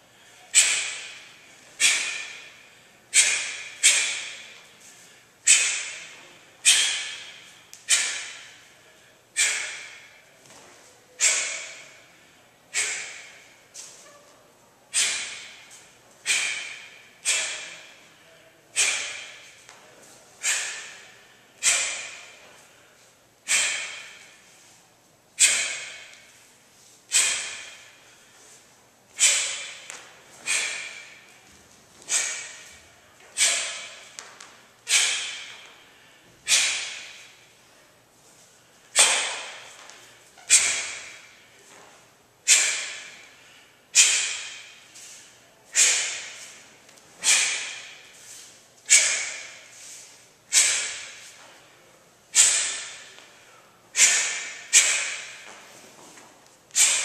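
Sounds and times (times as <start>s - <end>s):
sharp hissing exhalations: 23.5s - 24.3s, 29.2s - 31.3s, 42.4s - 46.6s, 47.2s - 51.4s, 52.3s - 53.1s, 53.9s - 55.5s.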